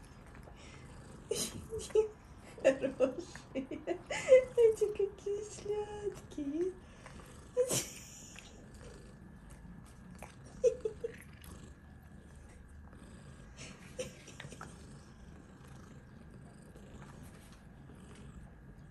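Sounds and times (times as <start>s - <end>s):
cats purring: 0.0s - 18.9s.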